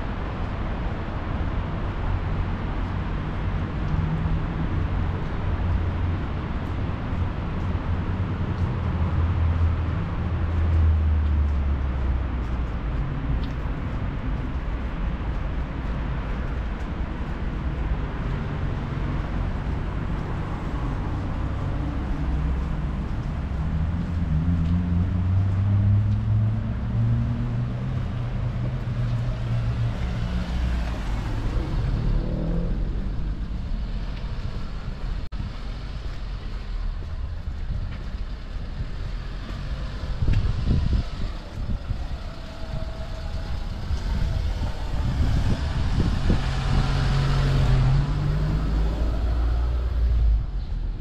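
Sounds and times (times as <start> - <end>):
low traffic rumble: 0.0 - 51.0
vehicle engine passing: 39.1 - 50.6.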